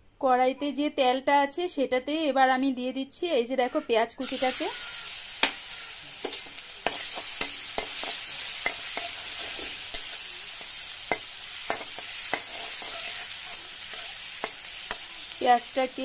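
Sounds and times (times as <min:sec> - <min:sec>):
onions sizzling in hot oil: 0:04.2 - 0:16.0
metal spatula clicking on pan: 0:06.2 - 0:13.0, 0:13.9 - 0:15.2.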